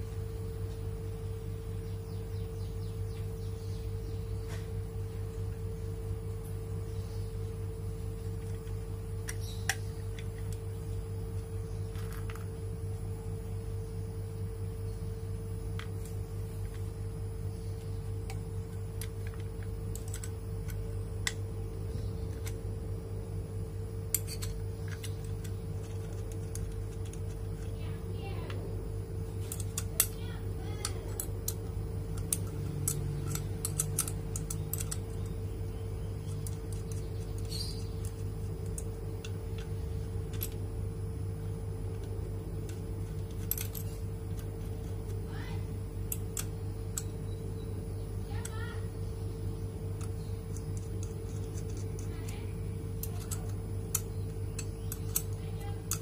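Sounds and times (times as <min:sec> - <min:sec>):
steady low hum: 0:00.0 - 0:56.0
metallic clicks and clinks: 0:30.8 - 0:35.2, 0:42.7 - 0:44.5
hand riveter metal clicks: 0:32.2 - 0:35.3.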